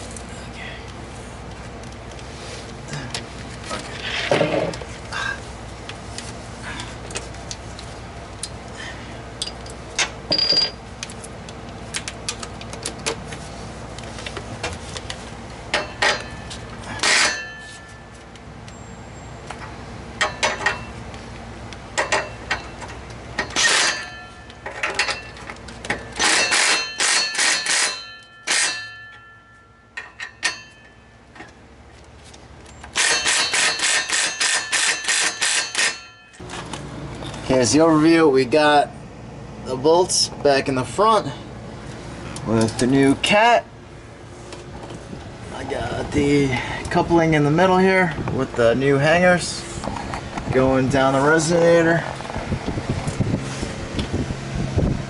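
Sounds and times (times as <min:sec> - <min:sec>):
metallic clinks of tools: 0:10.3 - 0:10.8
impact wrench hammering: 0:26.1 - 0:31.0, 0:33.0 - 0:36.4.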